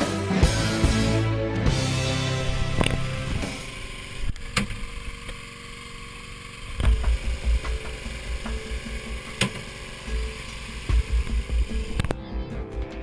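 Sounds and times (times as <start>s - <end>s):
gear knocking on deck: 6.8s - 10.3s.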